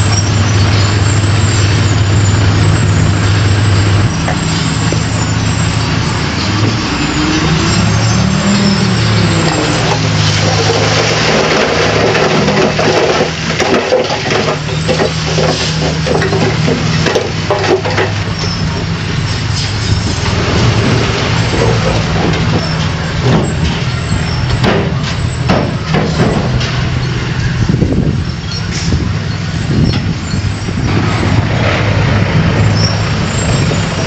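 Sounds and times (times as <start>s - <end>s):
diesel engine running under load: 0.0s - 34.0s
clanks and knocks: 3.3s - 29.1s.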